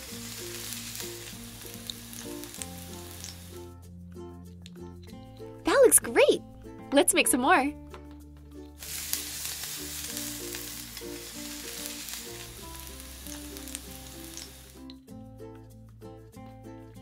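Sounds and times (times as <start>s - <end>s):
frying sizzle: 0.0s - 3.7s, 8.7s - 15.0s
light background music: 0.0s - 17.0s.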